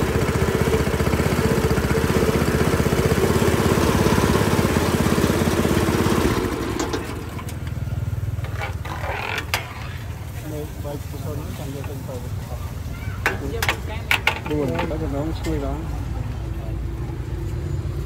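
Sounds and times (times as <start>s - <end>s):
small engine running: 0.0s - 12.3s.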